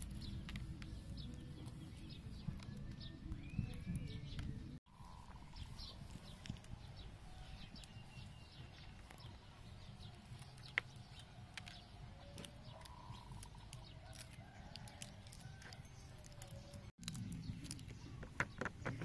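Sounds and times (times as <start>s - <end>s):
eggshell cracking and peeling: 10.0s - 19.0s.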